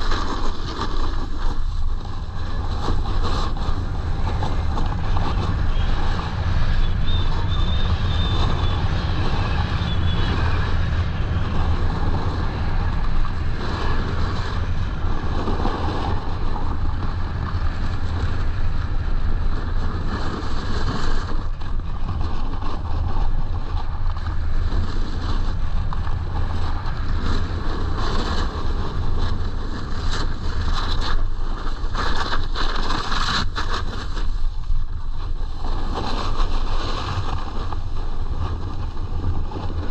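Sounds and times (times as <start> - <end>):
snowboard scraping over snow: 0.0 - 39.9
wind buffeting microphone: 0.0 - 39.9.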